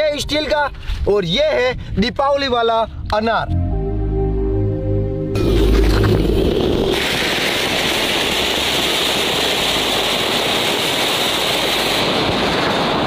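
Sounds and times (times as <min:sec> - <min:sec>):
firework fountain hissing: 0:05.7 - 0:13.0.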